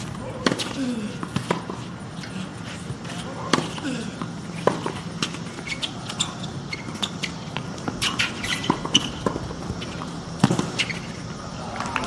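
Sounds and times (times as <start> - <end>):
footsteps on court: 0.0 - 12.0
racket striking tennis ball: 0.3 - 1.8, 3.1 - 11.1
shoe squeaks: 4.5 - 11.3.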